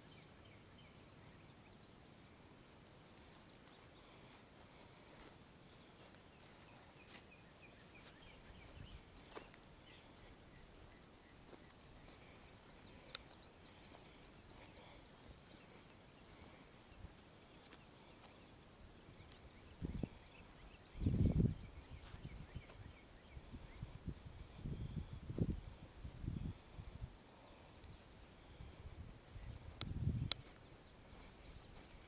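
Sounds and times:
soft clicks: 29.8s - 30.7s.

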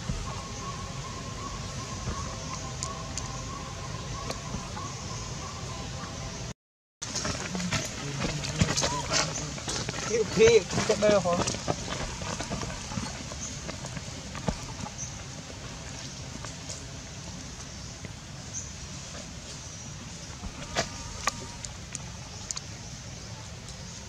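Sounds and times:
rustling in dry leaves: 7.0s - 24.0s.

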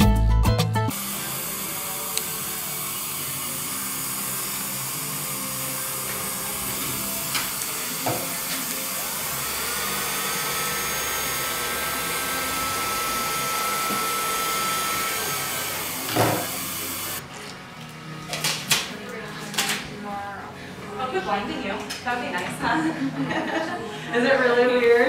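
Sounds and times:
dental suction hissing: 0.9s - 17.2s.

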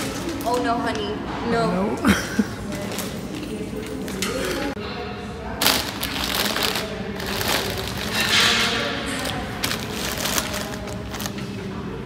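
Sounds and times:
plastic bags rustling: 0.0s - 1.1s, 2.6s - 4.7s, 5.6s - 11.7s.

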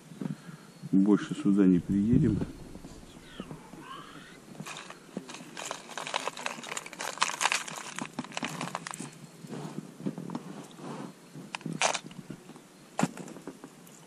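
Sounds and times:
plastic lures clicking and rattling: 4.6s - 9.1s.

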